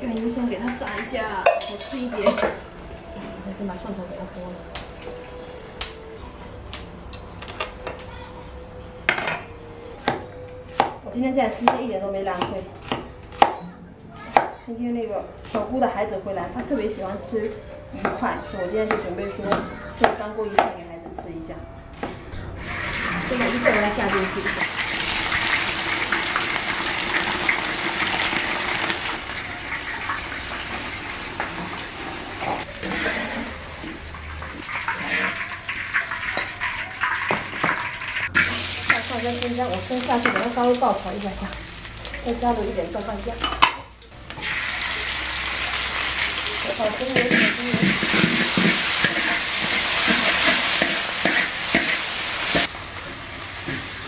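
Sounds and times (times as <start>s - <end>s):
fish deep-frying in oil: 22.8s - 32.3s, 34.0s - 54.0s
spatula scraping a wok: 31.8s - 36.4s, 45.5s - 52.7s.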